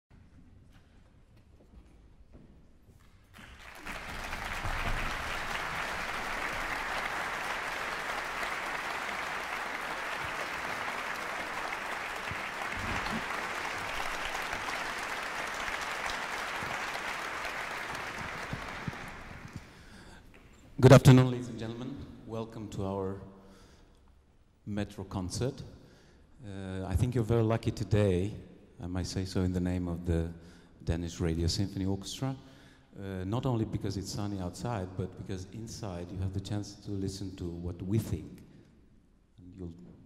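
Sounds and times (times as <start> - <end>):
audience applauding: 3.4 - 20.0.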